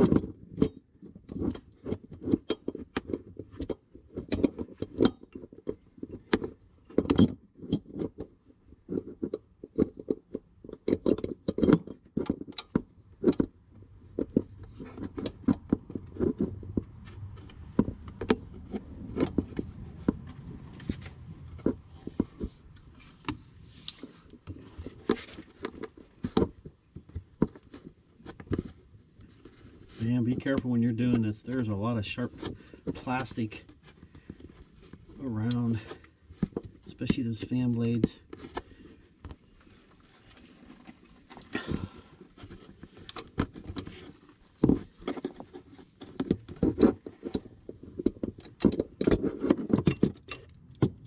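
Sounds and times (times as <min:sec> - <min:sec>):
tools and parts clicking and knocking: 0:00.0 - 0:51.0
hand tools clicking and knocking: 0:40.7 - 0:51.0.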